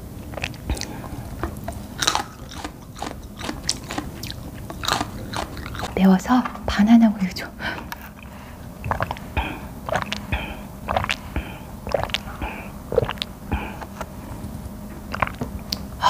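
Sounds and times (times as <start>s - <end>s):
swallowing gulps: 0.2s - 2.8s, 7.7s - 16.0s.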